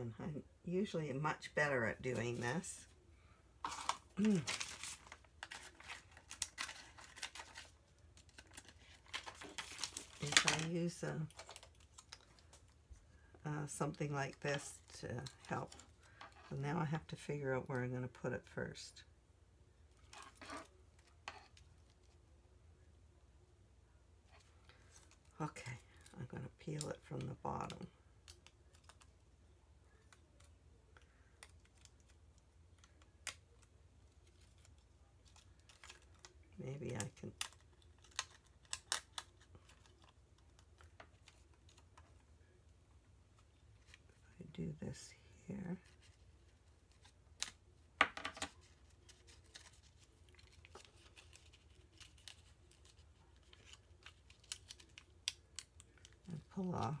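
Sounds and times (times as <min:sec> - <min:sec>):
plastic gems peeling and clicking: 0:27.6 - 0:29.2, 0:30.0 - 0:42.2, 0:48.2 - 0:56.5.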